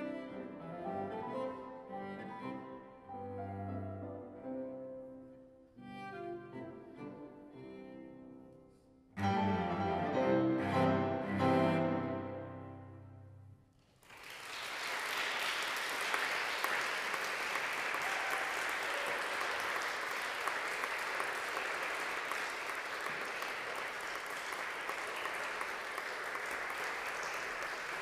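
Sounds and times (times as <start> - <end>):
audience applause: 13.8 - 28.0.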